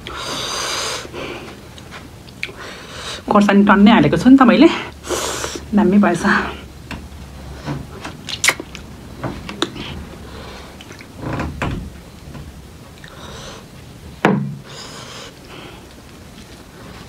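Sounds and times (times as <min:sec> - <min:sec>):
short breaths: 0:00.0 - 0:01.6
chewing mouth clicks and smacks: 0:01.8 - 0:02.6, 0:08.2 - 0:08.9.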